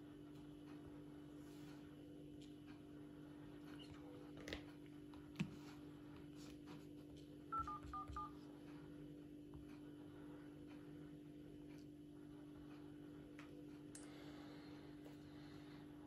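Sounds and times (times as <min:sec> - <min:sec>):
phone dial-pad touch tones: 0:07.5 - 0:08.4.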